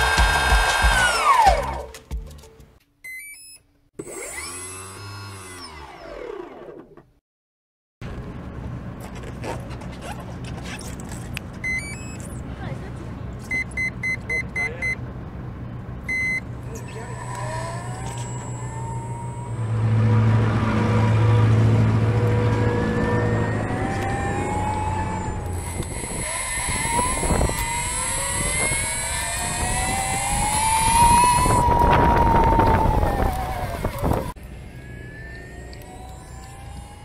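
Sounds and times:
electric motor whining: 4.0s - 7.0s, 16.7s - 37.0s.

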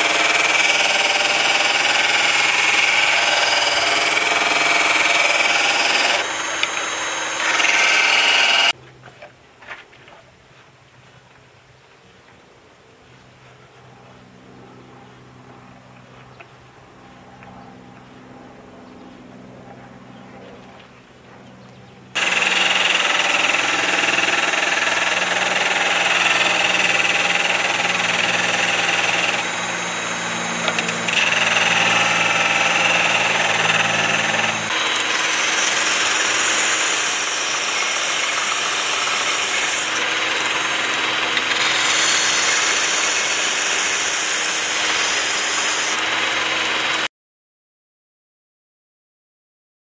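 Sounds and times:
drill-powered sander running: 0.0s - 8.8s, 22.2s - 47.1s
wood sanding hiss: 34.3s - 46.8s.

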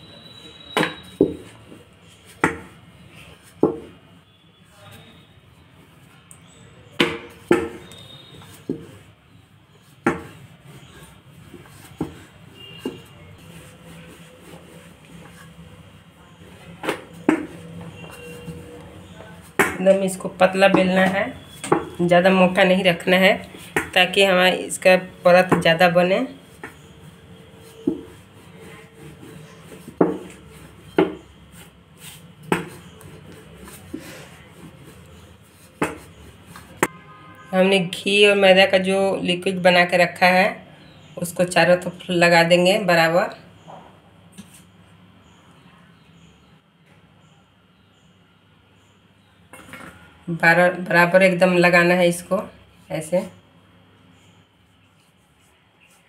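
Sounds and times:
rolling pin rolling dough: 0.1s - 37.0s
rolling pin knocking on board: 7.0s - 7.8s, 27.8s - 28.2s, 29.9s - 30.4s, 35.8s - 36.1s.

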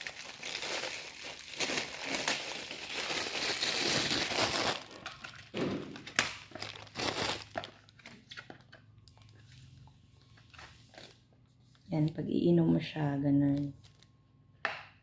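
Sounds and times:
plastic wrapping crinkling: 0.0s - 9.7s.

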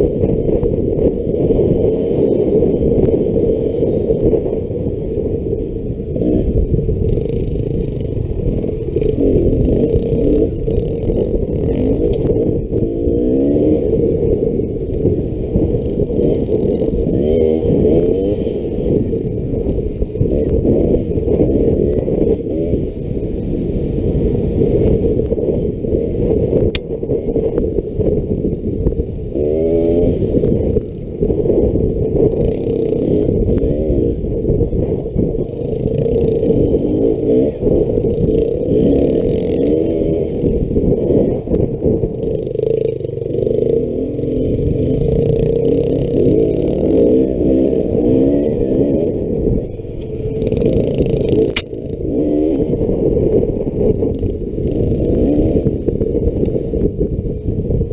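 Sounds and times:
dirt bike engine revving: 0.0s - 4.4s, 6.0s - 26.4s, 29.2s - 56.6s.

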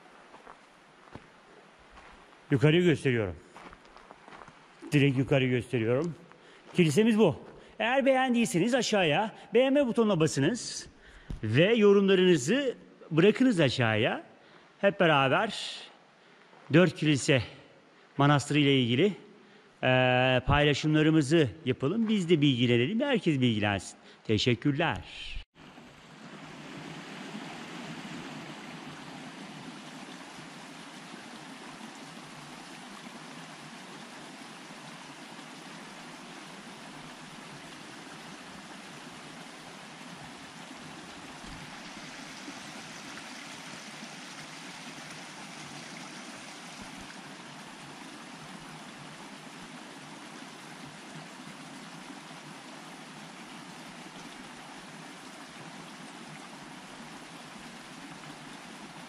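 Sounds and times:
stream rushing: 0.0s - 2.9s, 3.5s - 10.5s, 24.8s - 59.0s.

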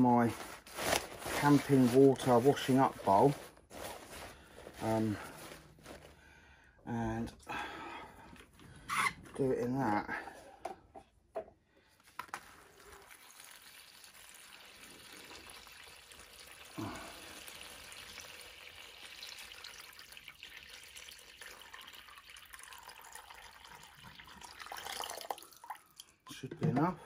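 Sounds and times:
water pouring into a bowl: 12.4s - 26.2s.

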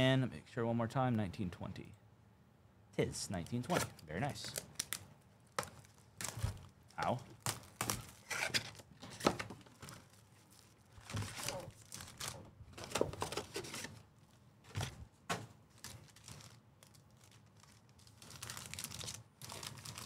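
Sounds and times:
plastic wrap crinkling: 3.5s - 14.9s, 15.6s - 20.0s
foil packs rustling: 3.5s - 15.0s, 15.6s - 20.0s
cardboard box tearing: 7.7s - 9.4s.

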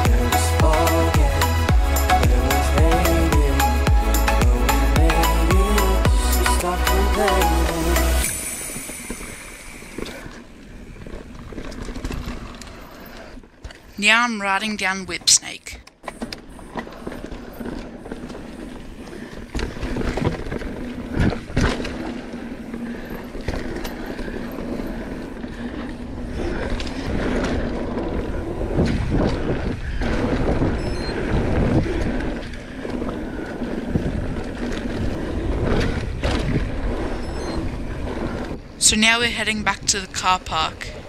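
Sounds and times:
bike rattling: 0.0s - 14.0s, 15.9s - 39.5s
bike tyres rumbling over dirt: 8.4s - 14.0s, 16.0s - 39.4s.

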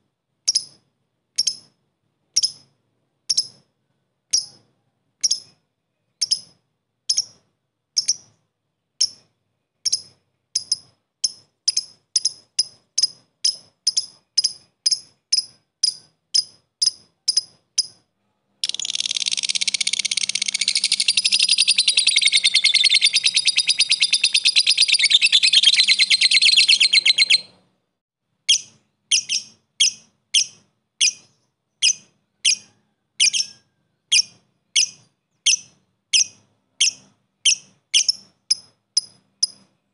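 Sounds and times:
bird chattering trill: 6.2s - 7.4s, 8.0s - 8.3s, 9.0s - 18.0s, 18.6s - 27.6s, 28.5s - 39.7s
bird chirping sharply: 18.6s - 27.6s.

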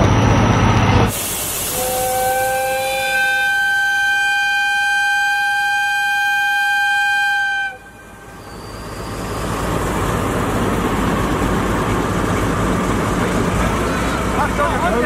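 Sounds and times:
locomotive horn blast: 1.7s - 9.2s
diesel engine throttling up: 8.0s - 15.0s.

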